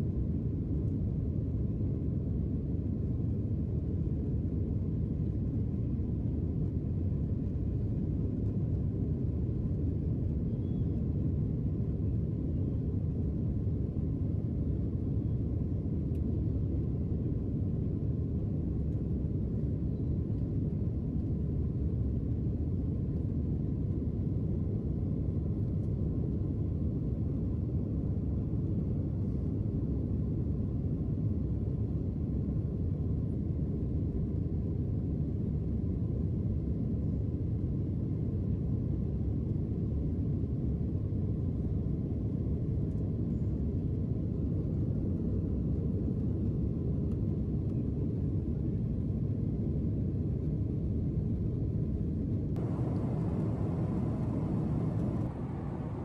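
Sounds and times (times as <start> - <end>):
aircraft engines and rushing air: 49.5 - 56.0.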